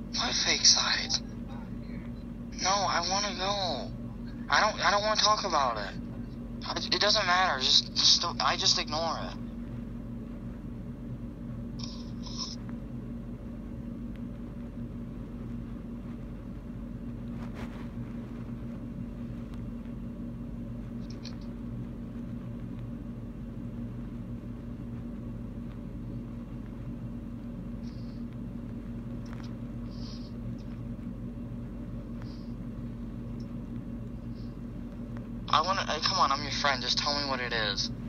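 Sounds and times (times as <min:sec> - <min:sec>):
low electrical hum: 0:00.0 - 0:38.0.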